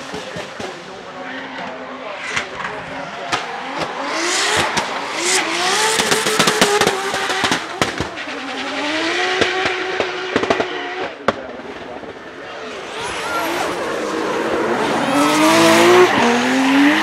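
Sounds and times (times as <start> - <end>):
car engine revving: 0.0 - 17.0
exhaust pops and bangs: 5.8 - 8.3, 9.2 - 12.2
tire squeal: 12.9 - 17.0.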